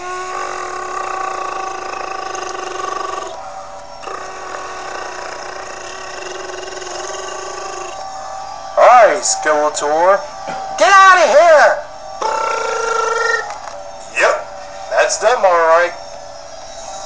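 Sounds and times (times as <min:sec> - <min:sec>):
person making buzzing voice effect: 0:00.0 - 0:03.4, 0:04.0 - 0:08.0, 0:12.2 - 0:13.5.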